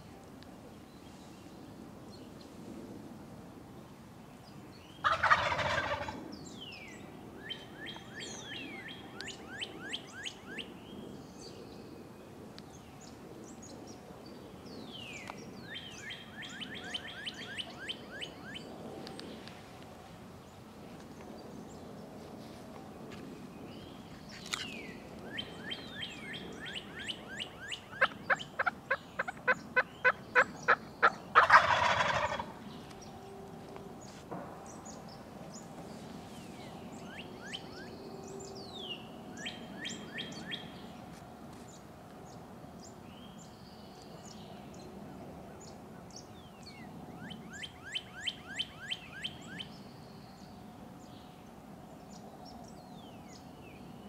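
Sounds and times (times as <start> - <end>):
turkey call high repeated calls: 5.0 - 6.2, 26.6 - 32.6
turkey gobbling: 5.0 - 6.2, 27.4 - 32.6.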